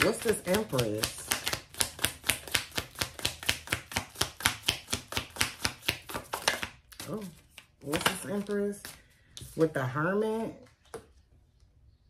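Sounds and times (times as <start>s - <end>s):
cards being shuffled: 0.0s - 9.6s.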